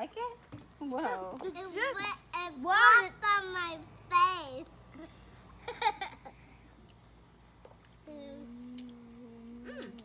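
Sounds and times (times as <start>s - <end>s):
child humming: 8.0s - 10.0s.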